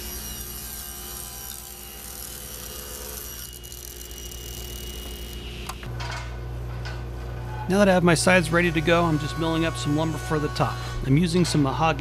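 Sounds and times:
table saw cutting board: 0.0s - 5.5s
steady machine hum: 0.0s - 12.0s.

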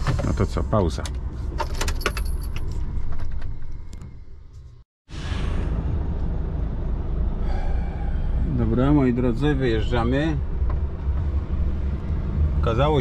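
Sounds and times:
clicks and rattles in truck cab: 0.0s - 4.0s.

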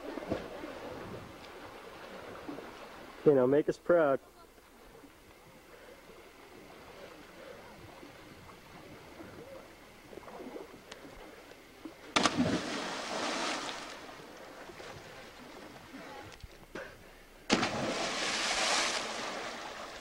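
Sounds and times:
loud splash into river: 12.2s - 14.1s, 17.5s - 20.0s
rush of spray: 17.5s - 20.0s.

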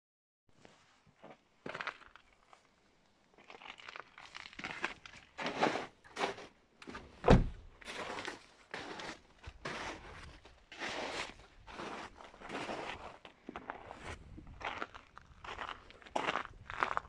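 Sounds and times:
footsteps on frozen gravel: 1.2s - 6.6s, 7.8s - 17.0s
car door shutting: 7.2s - 7.6s.

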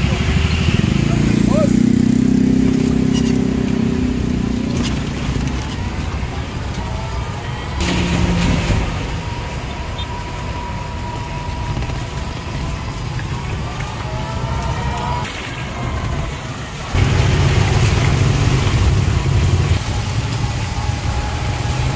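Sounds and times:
vehicle engine on wet road: 0.0s - 21.9s.

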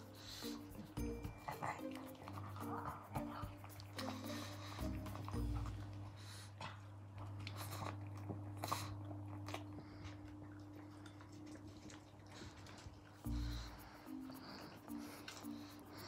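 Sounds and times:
low steady hum: 0.0s - 16.0s
dog crunching corn cob: 7.1s - 16.0s.

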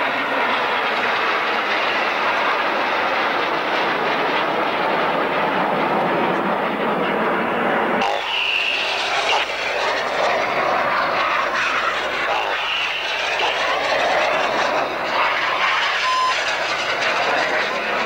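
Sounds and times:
short beep: 16.0s - 16.4s.

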